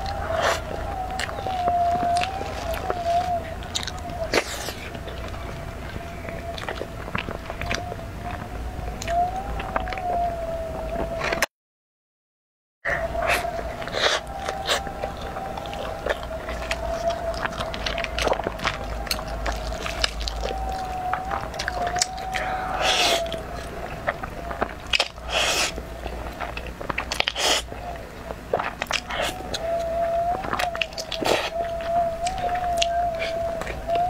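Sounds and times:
chewing and mouth clicks: 0.0 - 10.0, 13.2 - 34.0
slurping noodles: 25.0 - 25.8, 27.1 - 27.7.

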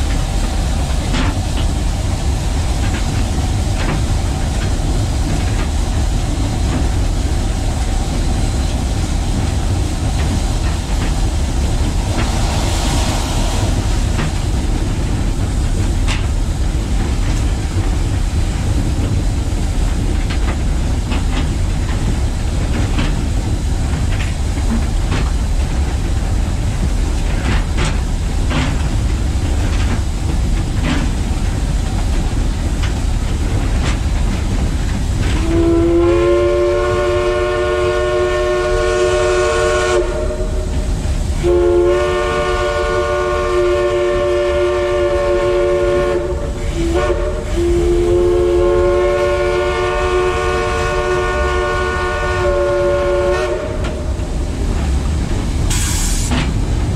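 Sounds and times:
steam locomotive rumble: 0.0 - 56.9
steam whistle blasts: 35.4 - 40.7, 41.4 - 54.0.

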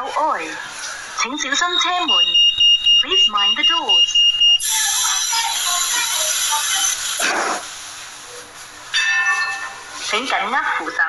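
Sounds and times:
door warning tone: 1.5 - 5.0.

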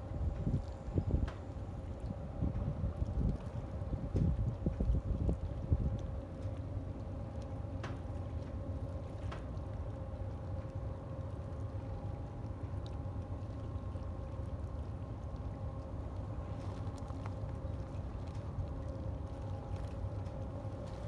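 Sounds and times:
constant hum: 0.0 - 21.0
ship machinery low rumble: 0.0 - 21.0.

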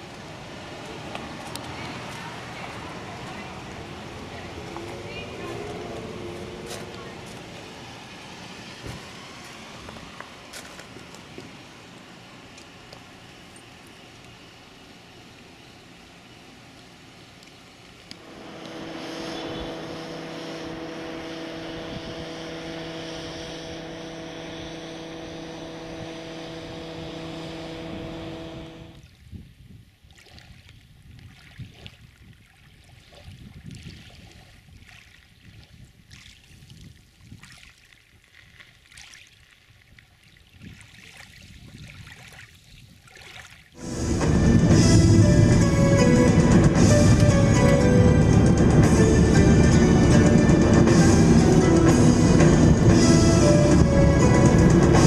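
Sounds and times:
steady engine hum: 0.0 - 29.1, 43.8 - 55.0
ripples lapping on pebble shore: 8.9 - 11.7, 30.0 - 43.8.

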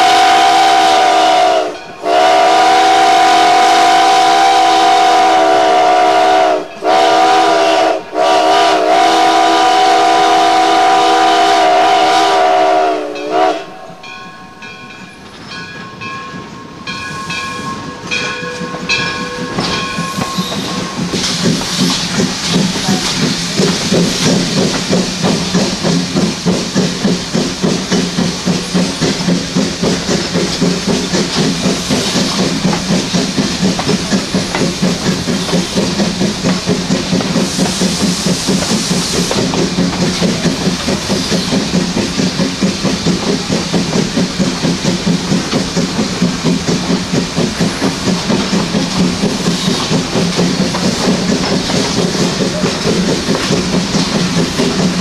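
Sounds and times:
steam hiss: 0.0 - 14.2, 19.4 - 55.0
steam locomotive whistle: 0.0 - 14.2
bell ringing: 14.0 - 21.0
locomotive exhaust chuffs: 18.7 - 55.0.

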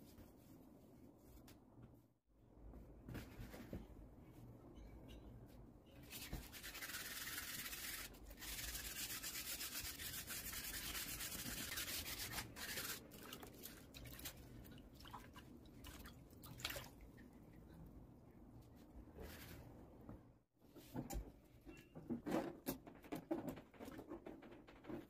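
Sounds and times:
sandpaper scratching: 6.5 - 13.0.

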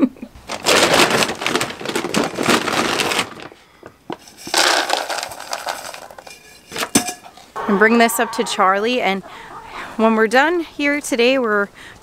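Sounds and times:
dry kibble rattling and rustling: 0.4 - 7.5.

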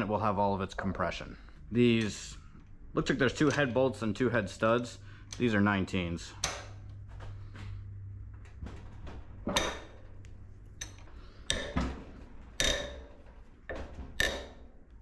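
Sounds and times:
wrench clinking on metal bolts: 9.5 - 10.0, 10.8 - 11.8, 12.6 - 13.2, 14.2 - 14.7.

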